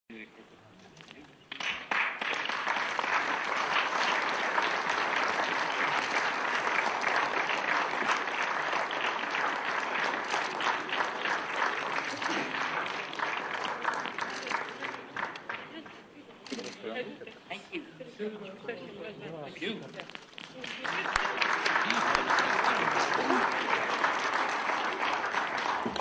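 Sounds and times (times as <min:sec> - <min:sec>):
audience applauding: 0:01.5 - 0:16.0, 0:20.3 - 0:26.0.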